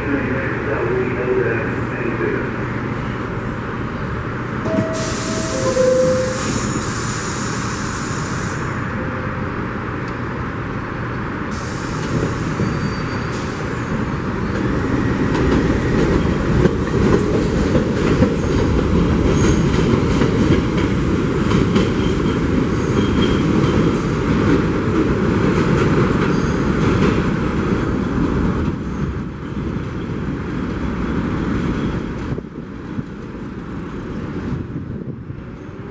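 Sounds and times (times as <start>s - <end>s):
train wheels rumbling on rail: 0.0s - 35.9s
rail joint clicks: 4.6s - 7.0s
faint wheel squeal: 12.6s - 13.9s.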